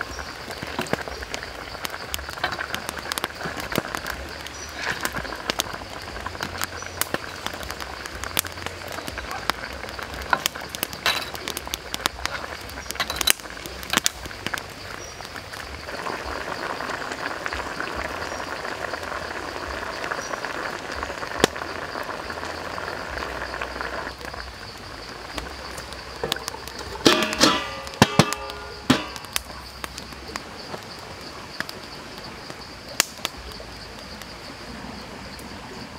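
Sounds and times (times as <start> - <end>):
chicken sizzling in sauce: 0.0 - 34.3
metal ladle scraping pan: 26.2 - 29.3.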